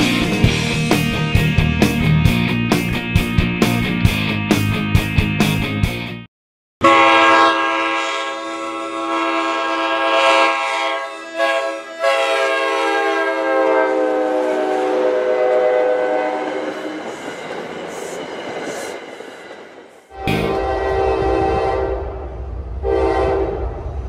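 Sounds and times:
train air horn blasts: 0:06.8 - 0:17.1, 0:20.1 - 0:23.8
train passing: 0:07.0 - 0:24.0.

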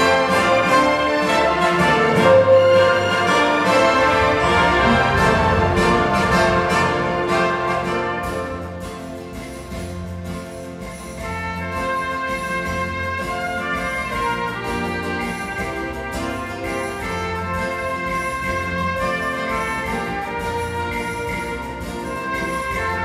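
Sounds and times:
orchestral music with brass: 0:00.0 - 0:09.8, 0:11.1 - 0:23.0.

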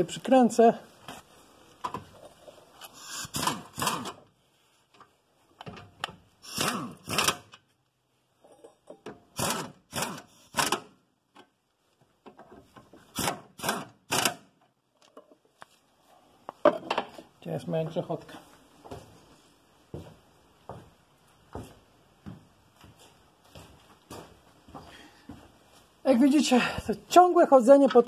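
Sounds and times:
metal tools clanking and scraping: 0:08.4 - 0:09.1.

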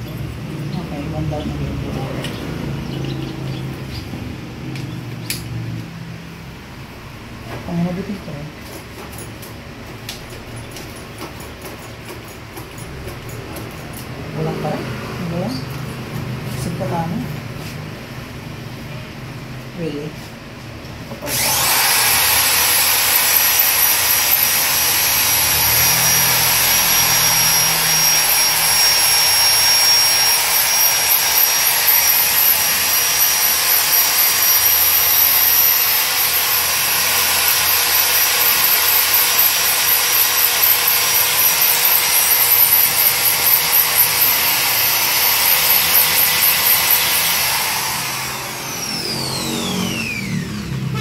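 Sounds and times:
power tool hissing and whining: 0:21.2 - 0:51.0.

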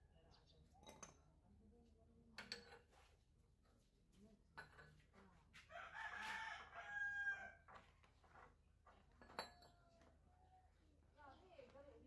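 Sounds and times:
rooster crowing faintly: 0:05.7 - 0:07.7.

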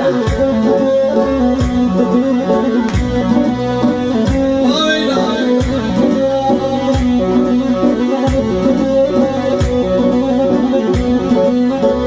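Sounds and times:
electronic keyboard melody: 0:00.0 - 0:12.0
steady drum beat: 0:01.6 - 0:10.3.

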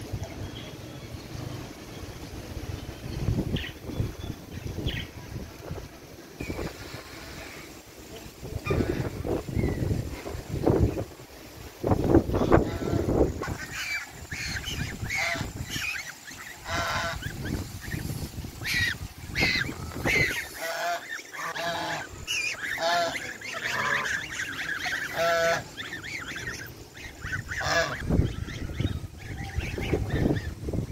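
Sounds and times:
geese honking: 0:08.6 - 0:09.4, 0:12.2 - 0:30.5.

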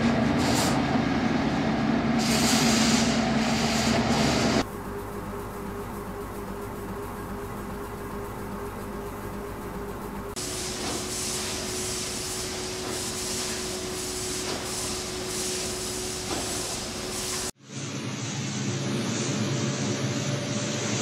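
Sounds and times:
constant machine hum: 0:00.0 - 0:21.0
low rumbling machine noise: 0:00.0 - 0:21.0
machinery hissing: 0:01.5 - 0:06.0, 0:10.4 - 0:21.0.

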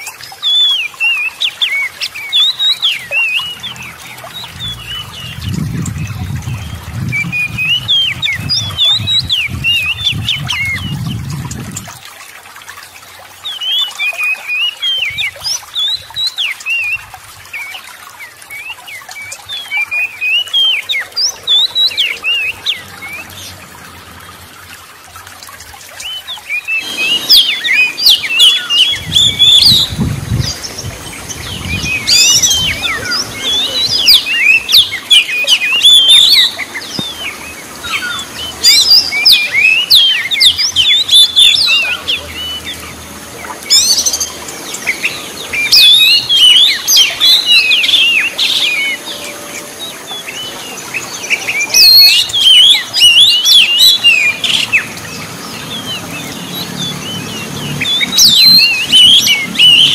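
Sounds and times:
bird singing whistles and chatter: 0:26.0 - 0:42.8, 0:43.5 - 0:55.0, 0:55.6 - 0:59.9.

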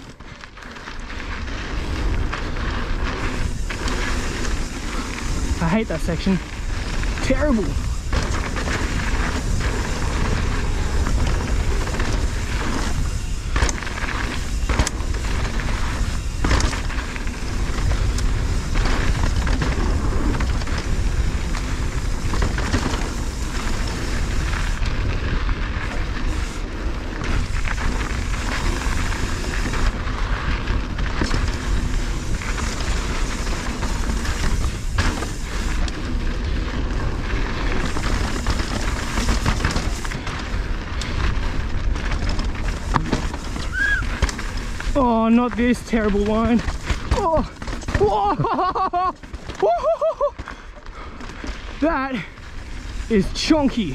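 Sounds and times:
tyres rumbling on dirt and gravel: 0:00.0 - 0:53.9
bike knocking over bumps: 0:06.6 - 0:25.0, 0:27.1 - 0:51.7.

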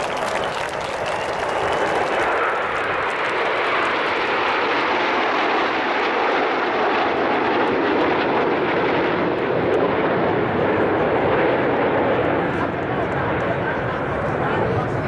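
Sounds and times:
jets passing overhead: 0:00.0 - 0:15.0.

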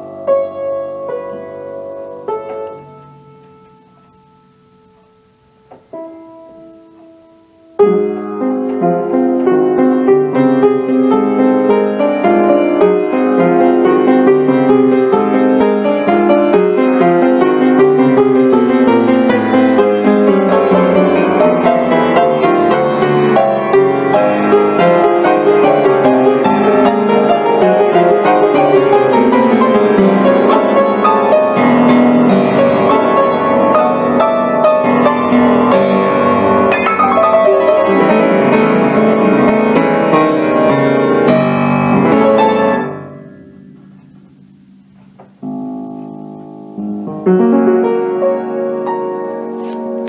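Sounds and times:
piano music: 0:00.0 - 0:50.0.

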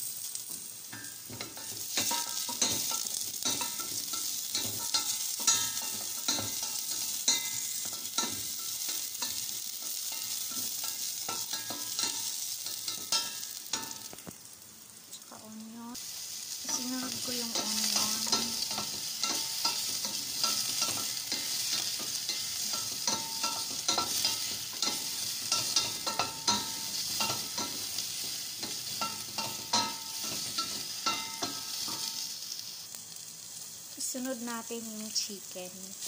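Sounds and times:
sizzling in hot oil: 0:00.0 - 0:36.0.

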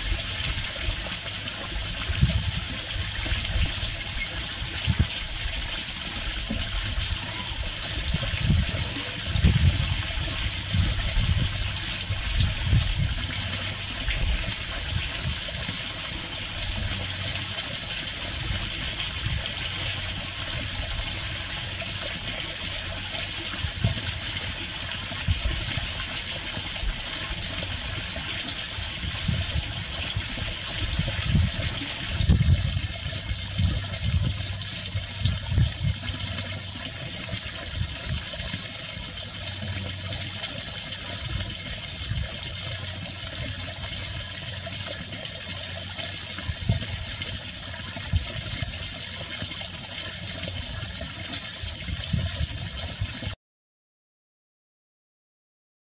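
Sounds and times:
steady water-like rushing: 0:00.0 - 0:53.4.

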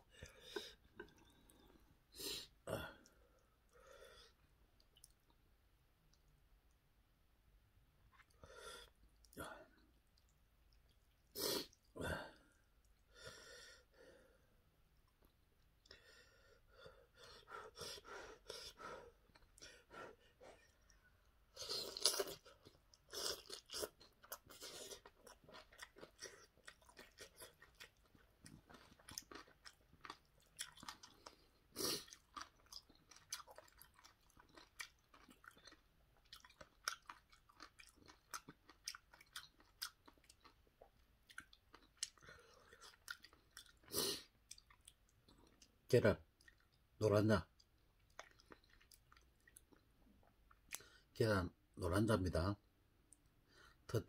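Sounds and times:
chewing noodles: 0:00.1 - 0:02.0, 0:17.1 - 0:46.9, 0:47.5 - 0:50.9.

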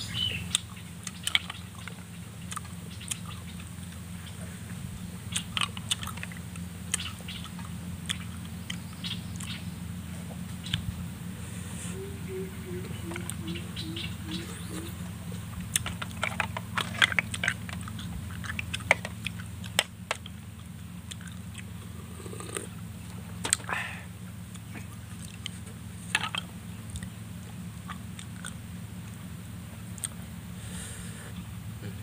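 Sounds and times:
steady low hum: 0:00.0 - 0:32.0
person sucking and chewing: 0:21.1 - 0:22.7.

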